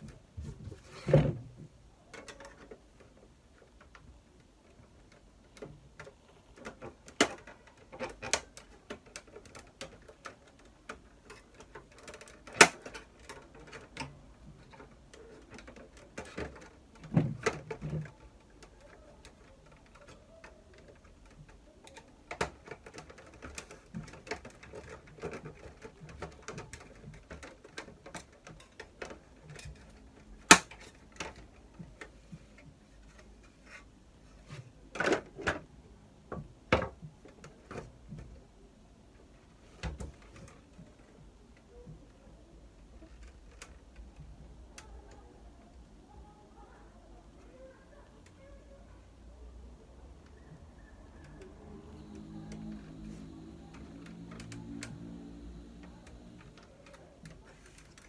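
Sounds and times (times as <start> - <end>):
plastic rattling: 0.0 - 38.4
plastic cover clicking and snapping: 5.1 - 32.1.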